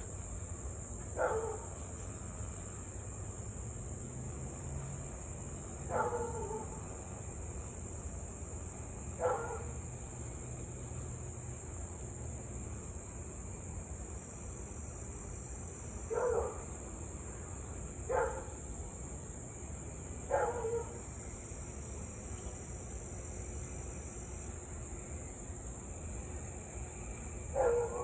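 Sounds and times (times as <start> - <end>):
insects droning: 0.0 - 28.0
dog barking: 1.2 - 1.7, 5.9 - 6.7, 9.2 - 9.7, 16.1 - 16.6, 18.1 - 18.5, 20.3 - 21.0, 27.6 - 28.0.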